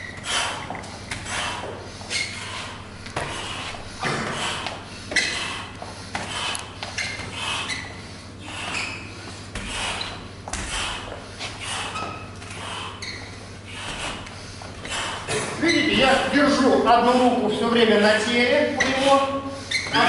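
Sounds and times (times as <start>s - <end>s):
breathing: 0.2s - 15.3s, 19.4s - 19.9s.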